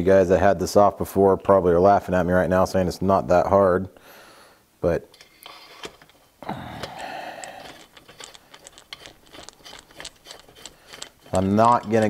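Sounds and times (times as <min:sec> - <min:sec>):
screwdriver scraping rasp: 0:07.4 - 0:12.0.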